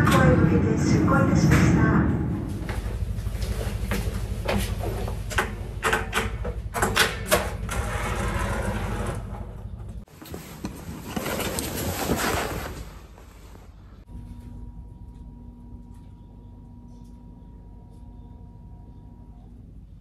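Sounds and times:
ship engine rumble: 0.0s - 6.8s
footsteps: 2.3s - 5.3s.

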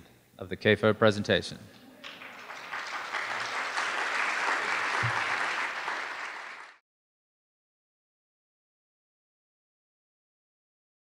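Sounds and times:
audience applauding: 2.0s - 6.8s.

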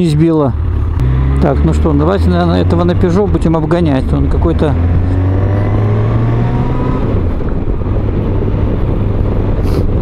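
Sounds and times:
motorcycle engine accelerating: 0.0s - 10.0s
wind and road noise: 0.0s - 10.0s.

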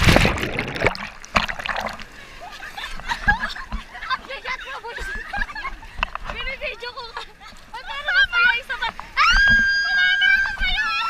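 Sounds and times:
water splashing and sloshing: 0.0s - 11.0s
women laughing and squealing: 2.2s - 11.0s.

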